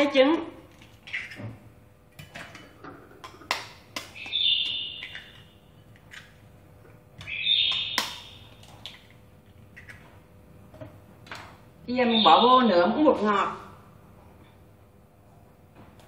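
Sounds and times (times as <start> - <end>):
knife cracking eggshells: 3.2 - 6.4, 7.2 - 9.2
bird calls: 4.0 - 5.6, 7.2 - 8.7.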